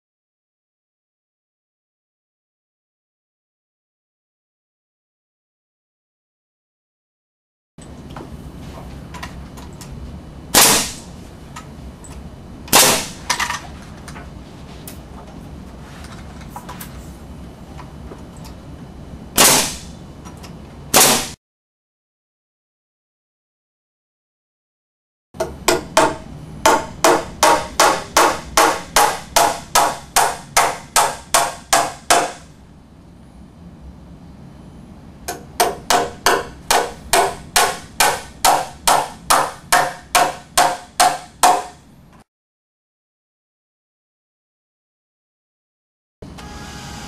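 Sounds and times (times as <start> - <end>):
nail gun firing: 10.5 - 11.1, 12.7 - 13.4, 19.4 - 19.9, 20.9 - 21.4, 26.7 - 32.5
hammer driving nails into wood: 25.4 - 32.4, 35.3 - 41.8.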